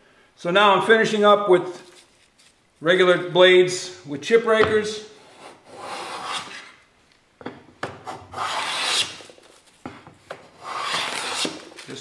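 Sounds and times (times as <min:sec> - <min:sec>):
bench plane shaving wood: 0:05.7 - 0:06.7, 0:08.3 - 0:09.1, 0:10.5 - 0:11.6.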